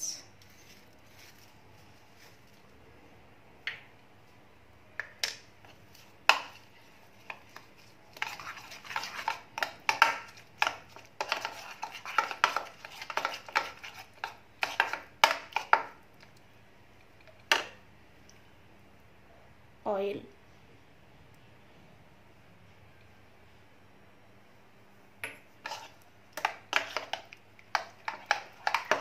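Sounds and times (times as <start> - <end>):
spoon stirring in a bowl: 5.6 - 16.4, 25.2 - 29.0.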